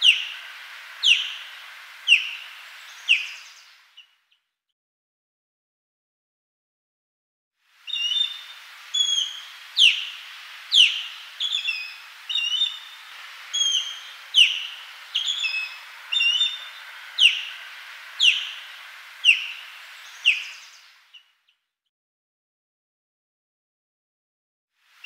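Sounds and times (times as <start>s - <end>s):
osprey whistled calls: 0.0s - 4.2s, 7.8s - 21.4s.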